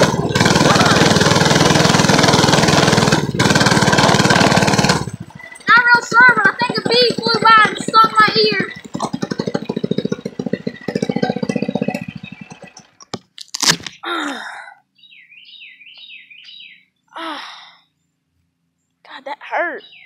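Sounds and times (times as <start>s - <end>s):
fast buzzing: 0.0s - 13.2s
bird chirping: 5.2s - 13.2s, 14.9s - 20.0s.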